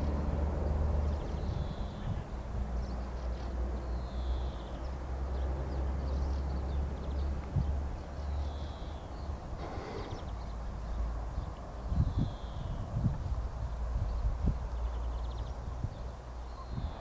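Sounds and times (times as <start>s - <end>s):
faint high bird calls: 1.2s - 2.3s, 8.2s - 10.6s, 16.4s - 17.0s.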